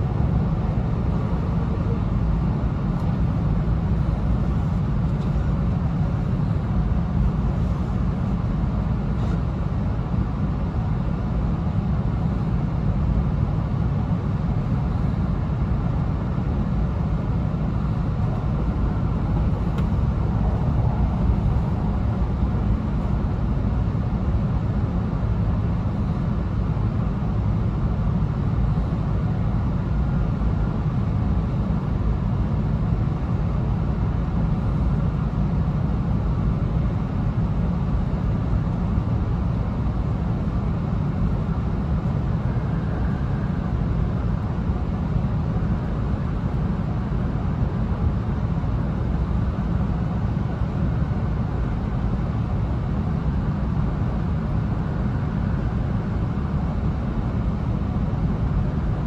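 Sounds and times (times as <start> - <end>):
train cabin low rumble: 0.0 - 59.0.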